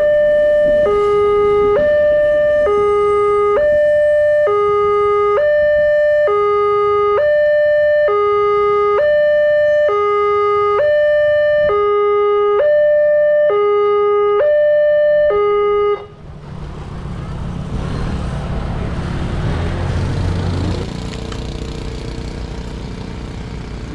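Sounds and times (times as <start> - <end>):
two-tone crossing alarm: 0.0 - 16.2
road traffic noise: 0.0 - 23.9
motorbike passing: 16.0 - 23.9.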